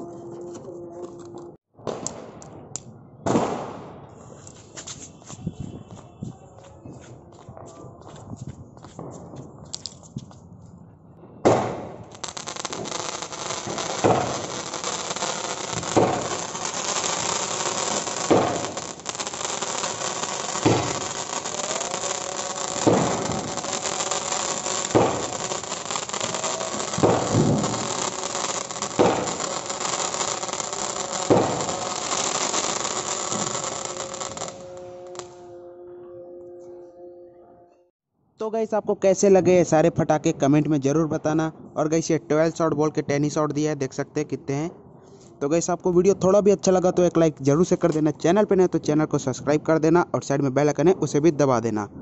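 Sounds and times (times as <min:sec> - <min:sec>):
firework launch pops: 0:01.8 - 0:02.5, 0:03.2 - 0:05.0, 0:11.4 - 0:12.0, 0:14.0 - 0:14.4, 0:15.8 - 0:16.3, 0:18.3 - 0:18.7, 0:20.6 - 0:21.0, 0:22.8 - 0:23.6, 0:24.9 - 0:25.3, 0:26.3 - 0:28.0, 0:28.9 - 0:29.5, 0:31.3 - 0:32.4.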